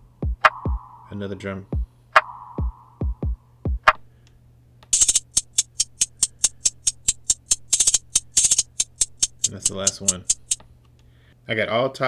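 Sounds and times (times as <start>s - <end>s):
deep kick drums: 0.0s - 0.8s, 2.6s - 4.0s
rapid hi-hats: 4.9s - 10.6s.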